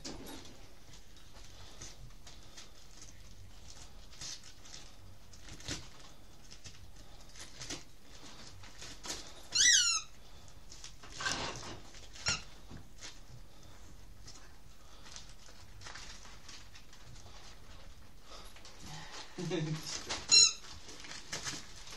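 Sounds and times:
paper crinkling: 0:00.7 - 0:09.4, 0:10.0 - 0:21.9
dog chewing paper: 0:00.8 - 0:18.8, 0:19.6 - 0:21.9.

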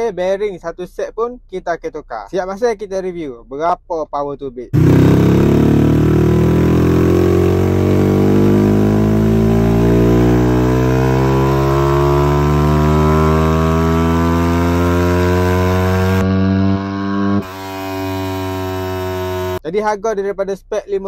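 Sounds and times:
motorcycle engine revving under load: 0:04.8 - 0:19.6.

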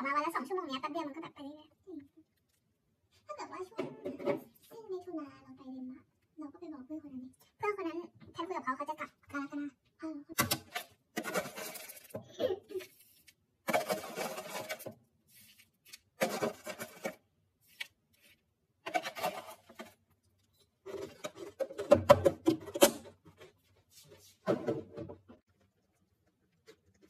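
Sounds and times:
granola rattling into plastic container: 0:10.7 - 0:12.1, 0:13.7 - 0:14.9, 0:16.2 - 0:17.2.

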